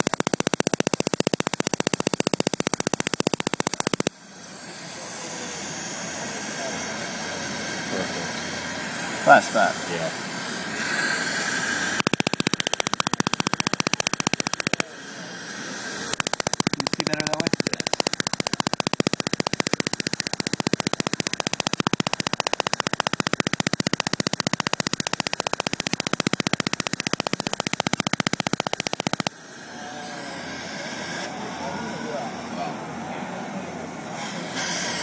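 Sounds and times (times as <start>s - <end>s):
laser rapid sharp pops: 0.0s - 4.2s, 12.0s - 14.9s, 16.1s - 29.4s.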